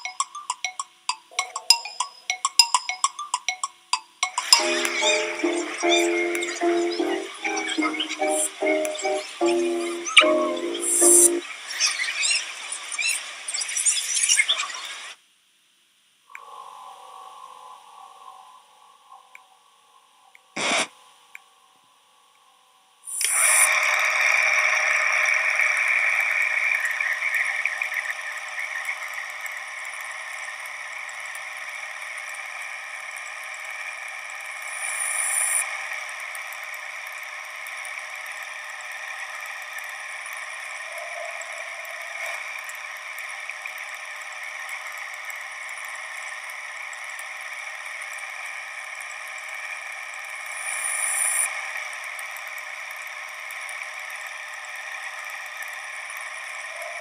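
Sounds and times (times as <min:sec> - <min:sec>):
film projector whirring and clattering: 0:23.2 - 0:57.0.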